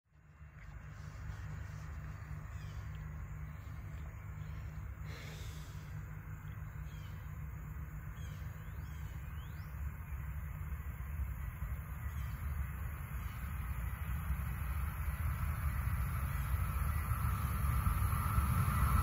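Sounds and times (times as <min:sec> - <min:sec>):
steady low rumble: 0:00.1 - 0:19.0
bird chirps: 0:02.0 - 0:07.4, 0:08.1 - 0:10.4.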